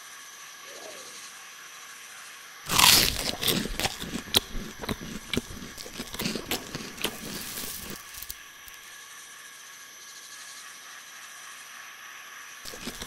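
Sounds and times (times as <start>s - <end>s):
crunchy chewing: 2.7s - 8.9s, 12.6s - 13.0s.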